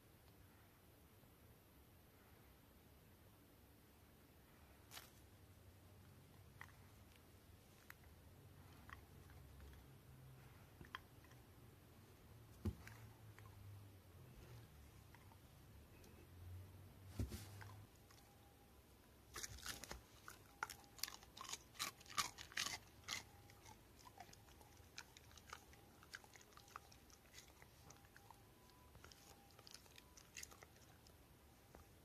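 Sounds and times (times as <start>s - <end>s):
dog chewing crunchy food: 6.4s - 11.5s, 19.3s - 31.2s.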